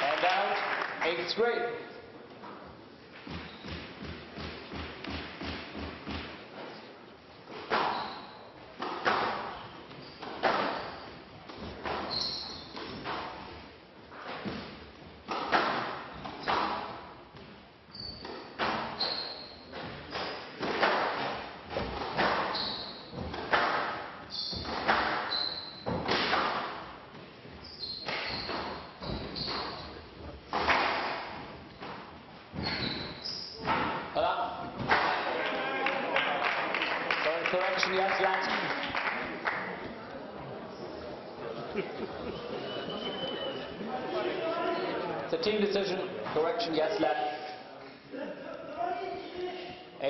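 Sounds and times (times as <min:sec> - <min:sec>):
court shoes squeaking: 0:02.4 - 0:06.9, 0:07.5 - 0:35.0, 0:42.2 - 0:43.9
squash ball thuds echoing: 0:19.8 - 0:27.3.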